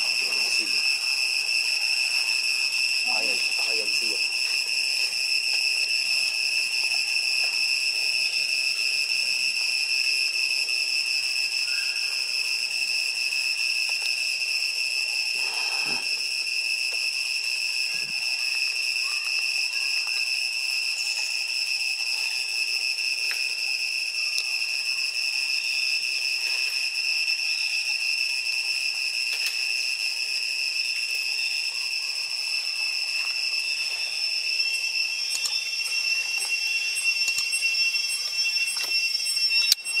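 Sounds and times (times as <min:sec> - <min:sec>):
insects droning: 0:00.0 - 0:40.0.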